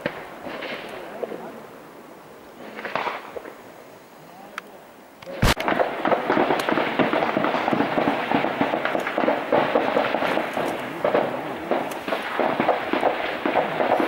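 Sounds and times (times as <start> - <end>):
continuous rifle gunfire: 5.3 - 14.0.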